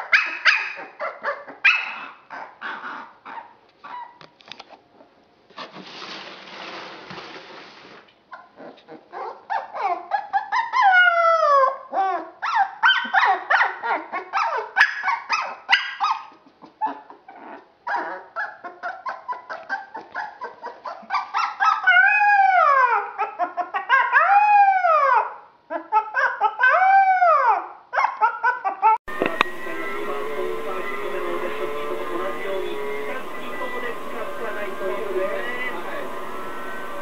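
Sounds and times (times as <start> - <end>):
puppy yipping and whining: 0.0 - 4.2, 8.3 - 29.0
puppy howling: 8.4 - 37.0.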